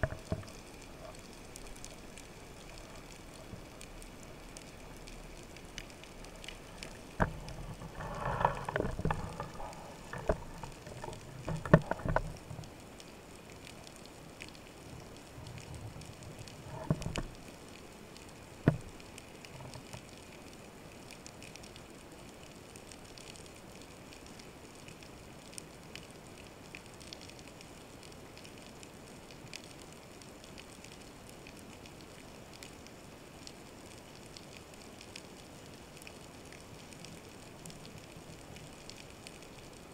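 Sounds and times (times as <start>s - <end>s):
underwater gear knocking: 0.0s - 1.1s, 6.7s - 12.7s, 16.6s - 17.4s, 18.6s - 18.9s
faint underwater crackling: 0.0s - 39.9s.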